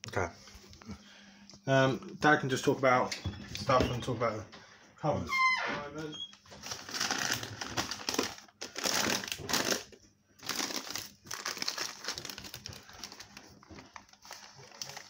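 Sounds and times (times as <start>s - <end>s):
rustling and crinkling in cupboard: 6.4s - 15.0s.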